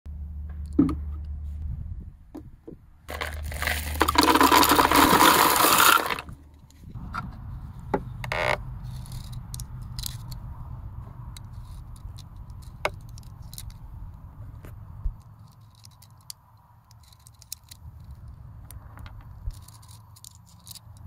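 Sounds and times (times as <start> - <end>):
loud scraping rustle: 3.1 - 9.4.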